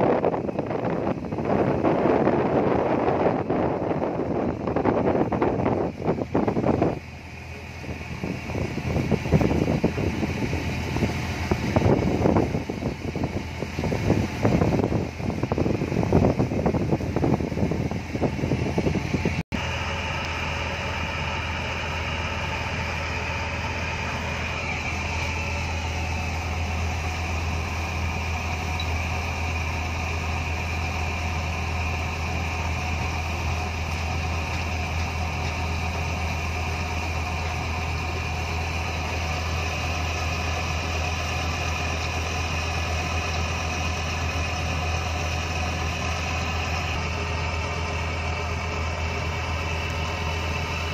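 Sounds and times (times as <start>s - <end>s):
wind buffeting microphone: 0.0s - 19.4s
boat engine drone: 0.0s - 50.9s.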